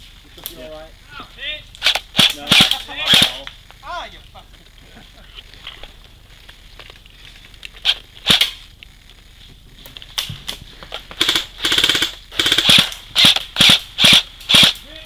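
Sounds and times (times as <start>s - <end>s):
airsoft guns firing: 1.8s - 3.6s, 7.8s - 8.7s, 10.1s - 15.0s.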